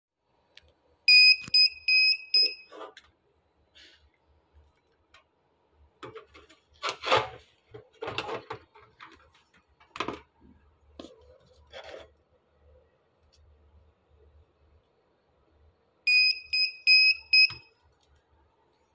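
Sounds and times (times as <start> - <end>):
short high-pitched beeps: 1.1 - 2.7.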